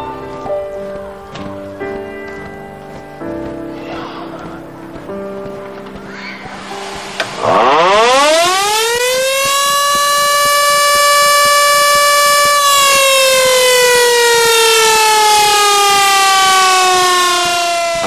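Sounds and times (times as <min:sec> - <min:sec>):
air-raid siren wailing: 0:07.2 - 0:18.0.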